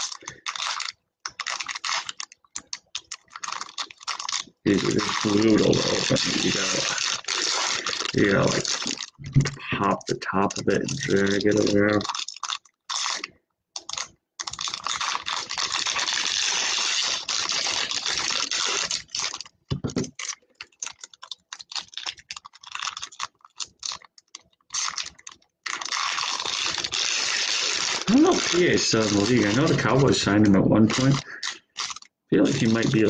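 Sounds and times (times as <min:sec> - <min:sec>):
foil wrapper crinkling and tearing: 0:00.0 - 0:33.0.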